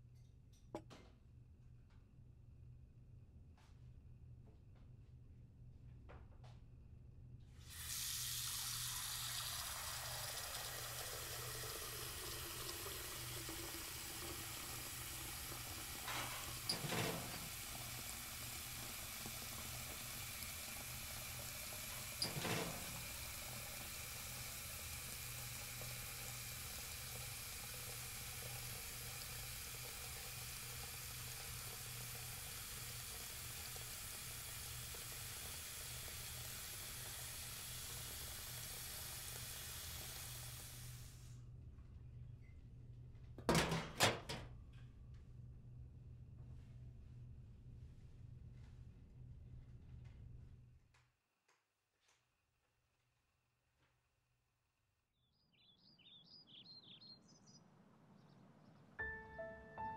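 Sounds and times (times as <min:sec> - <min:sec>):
water running into steel sink: 0:07.6 - 0:41.1.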